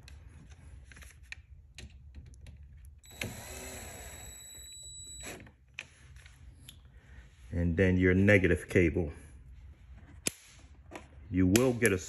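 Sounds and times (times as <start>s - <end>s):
cordless drill motor whirring: 3.0s - 5.5s.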